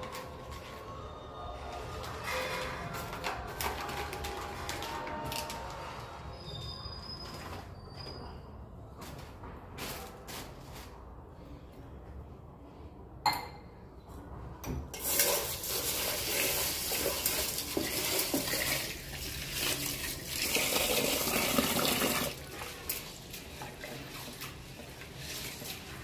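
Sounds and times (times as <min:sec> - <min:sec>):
water splashing into a pot: 0:15.0 - 0:26.0.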